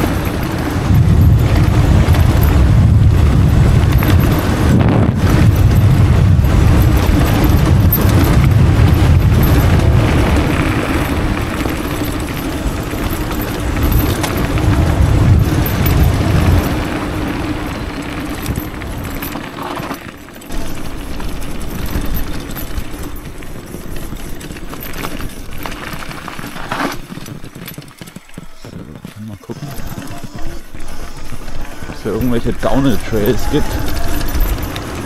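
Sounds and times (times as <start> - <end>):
wind rushing over microphone: 0.0 - 25.7
tyres rumbling on dirt: 0.0 - 35.0.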